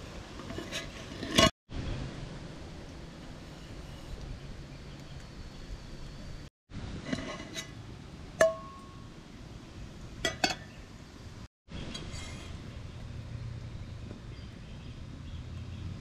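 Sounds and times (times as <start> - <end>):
aluminium cookware clinking: 8.4 - 9.1, 10.2 - 10.8.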